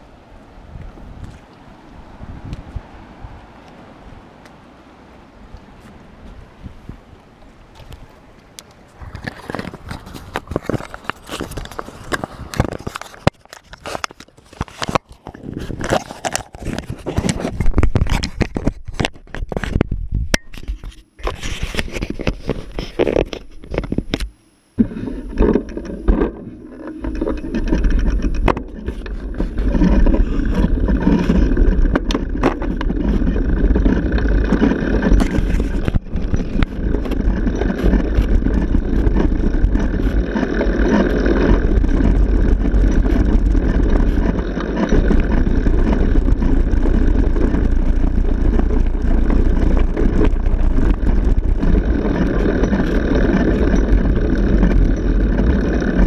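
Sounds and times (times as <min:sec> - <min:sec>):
wind noise on microphone: 0:00.0 - 0:04.6, 0:05.3 - 0:56.0
bicycle rolling over stone paving: 0:08.9 - 0:56.0
camera handling clicks and scrapes: 0:09.0 - 0:33.4.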